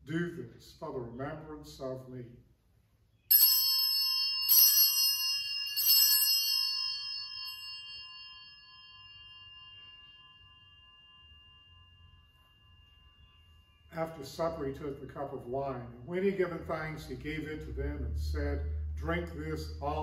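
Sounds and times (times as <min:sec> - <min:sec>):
altar bell ringing: 0:03.2 - 0:17.6.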